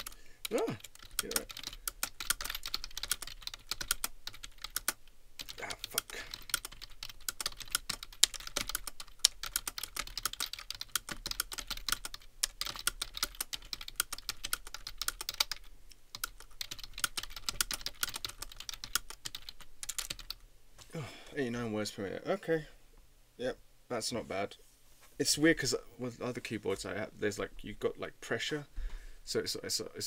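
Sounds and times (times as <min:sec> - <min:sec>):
fast typing on keyboard: 0:00.0 - 0:20.4.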